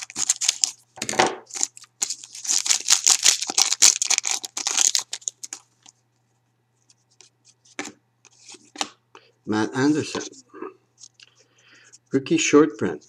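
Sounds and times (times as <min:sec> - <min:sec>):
foil wrapper crinkling: 0:00.0 - 0:00.8, 0:01.5 - 0:06.0.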